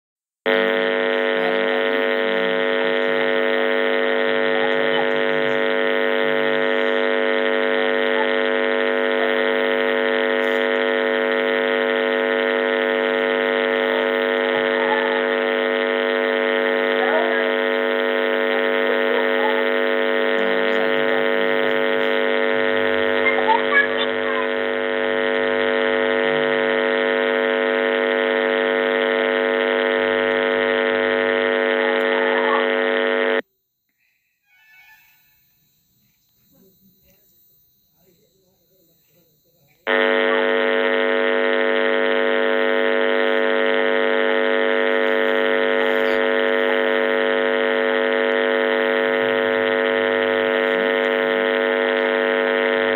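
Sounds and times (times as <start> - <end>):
loud electrical hum: 0.4 - 33.4, 34.6 - 52.9
faint short chirps: 33.9 - 37.2.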